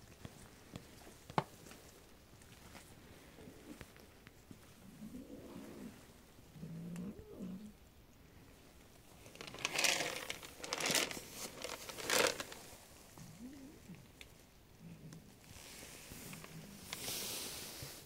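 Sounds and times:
plastic jug crinkling: 0:09.2 - 0:12.8.

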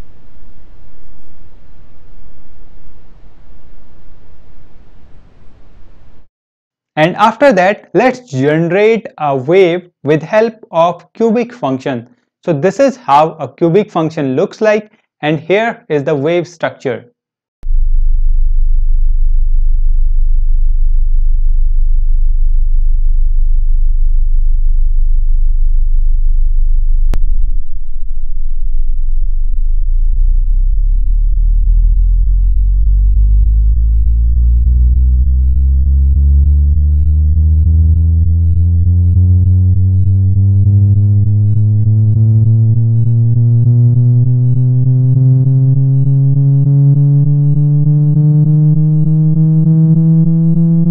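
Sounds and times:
rising sine tone hum: 0:00.0 - 0:06.3, 0:17.6 - 0:50.9.

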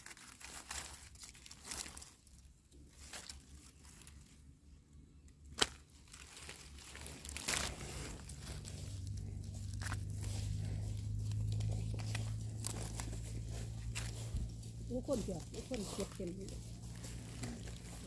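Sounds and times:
dry leaves crackling: 0:00.0 - 0:18.0.

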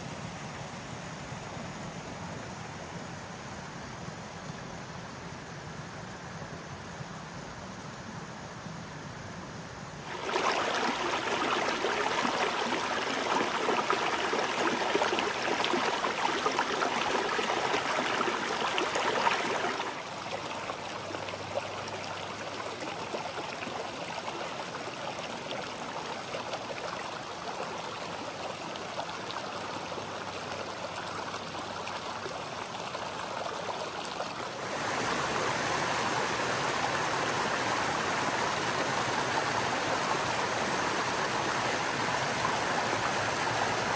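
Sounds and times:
creek running over rocks: 0:09.9 - 0:43.9
small cascade spilling over rocks: 0:10.0 - 0:20.0.

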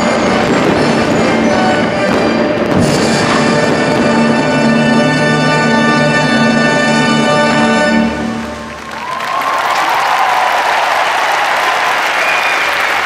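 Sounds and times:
orchestral music: 0:00.0 - 0:09.1.

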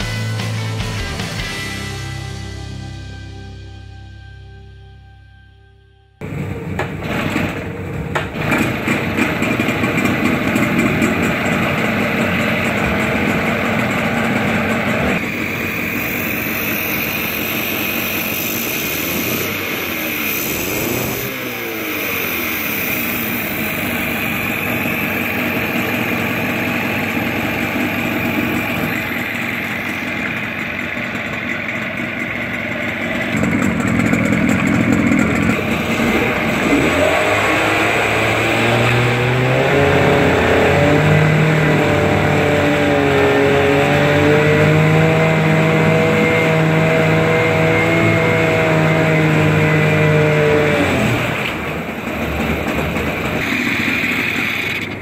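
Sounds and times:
propeller churning water: 0:06.2 - 0:42.5
outboard motor running: 0:06.2 - 0:55.0.

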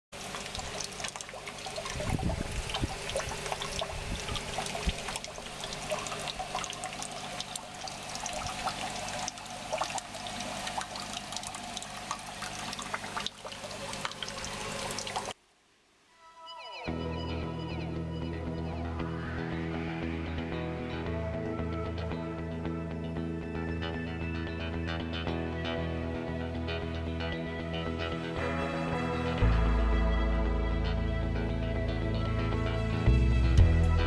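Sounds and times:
water trickling and splashing: 0:00.2 - 0:15.4.

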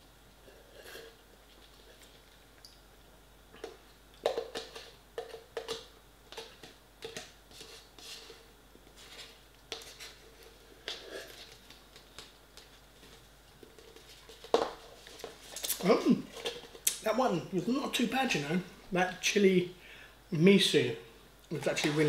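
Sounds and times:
fork scraping cardboard pot: 0:07.5 - 0:08.4.

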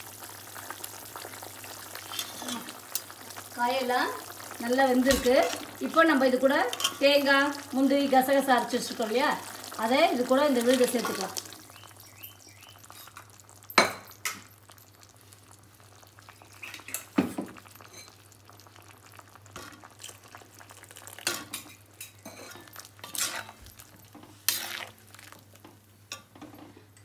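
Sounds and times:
gravy simmering: 0:00.0 - 0:27.0
metal spatula scraping pan: 0:02.1 - 0:02.7, 0:22.3 - 0:23.6, 0:24.4 - 0:25.0.

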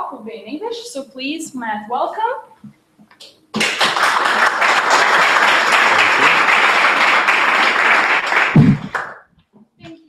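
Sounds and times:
audience applauding: 0:03.6 - 0:09.2
loud low thump: 0:08.6 - 0:08.9.

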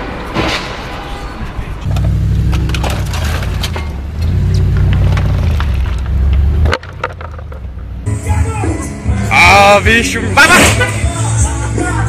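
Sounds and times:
car engine droning: 0:00.8 - 0:09.3
sharp knocks and clatter: 0:01.9 - 0:07.9.

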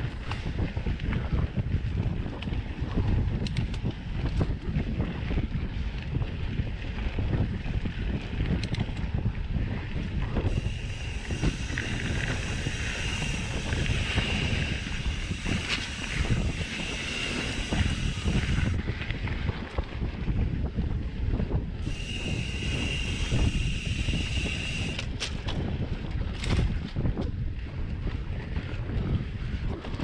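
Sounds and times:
wind buffeting microphone: 0:00.0 - 0:30.0
high steady hum: 0:10.4 - 0:18.9, 0:21.7 - 0:25.2.

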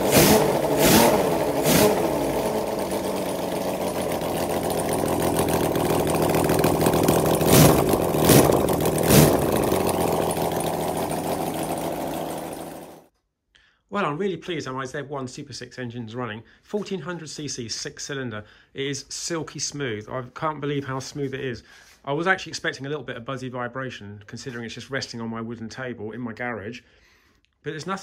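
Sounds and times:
engine idling and revving: 0:00.0 - 0:13.1.

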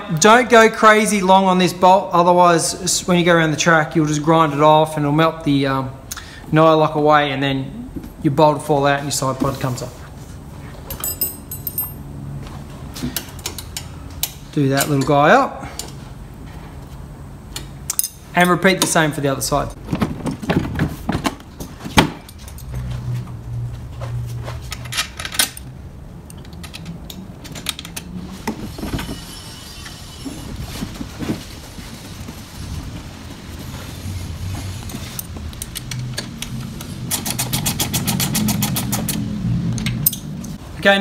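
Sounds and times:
metal bars clinking on chassis: 0:10.9 - 0:12.1, 0:22.2 - 0:23.1, 0:24.6 - 0:25.7, 0:39.8 - 0:40.6.

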